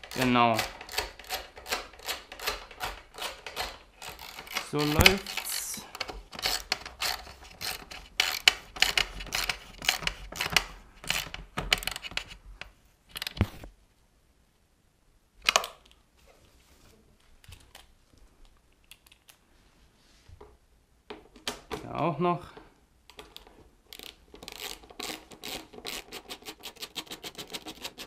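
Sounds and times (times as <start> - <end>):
hand ratchet clicking: 0.0 - 12.0.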